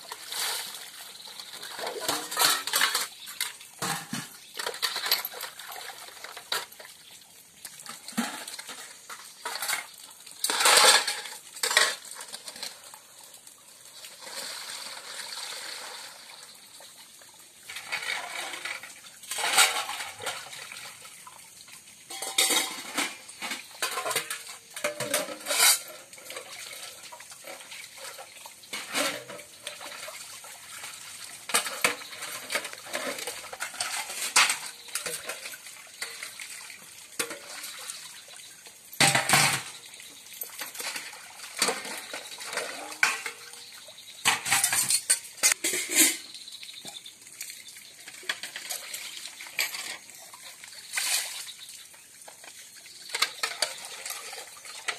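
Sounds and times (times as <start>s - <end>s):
water splashing in steel basin: 0.0s - 54.9s
metal dishes clanking: 1.7s - 6.7s, 8.2s - 12.8s, 17.7s - 20.6s, 22.1s - 26.8s, 27.5s - 30.0s, 31.5s - 36.4s, 39.0s - 39.8s, 40.6s - 47.0s, 49.6s - 50.0s.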